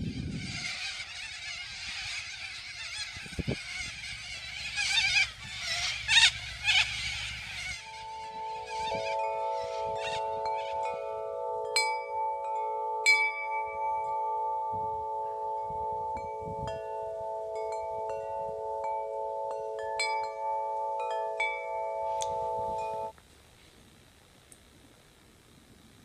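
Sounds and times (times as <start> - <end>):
drone of held tones: 0.0 - 23.2
chimes ringing: 7.9 - 23.1.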